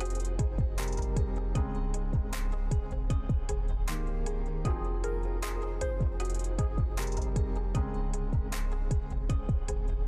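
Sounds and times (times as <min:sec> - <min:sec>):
background beat music: 0:00.0 - 0:10.0.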